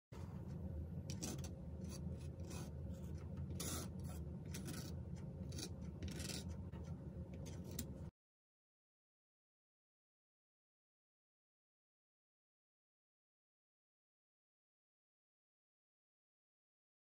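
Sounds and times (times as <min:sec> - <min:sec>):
steady low hum: 0:00.2 - 0:08.1
palette knife scraping paint: 0:01.1 - 0:08.1.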